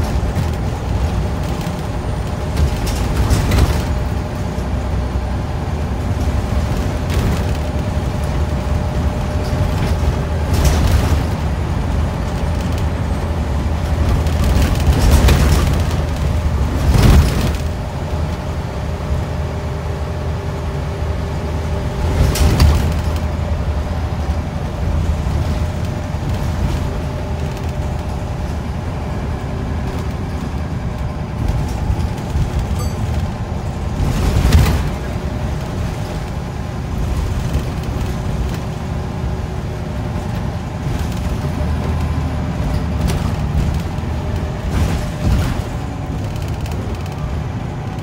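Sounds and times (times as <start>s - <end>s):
bus diesel engine: 0.0s - 48.0s
road rumble: 0.0s - 48.0s.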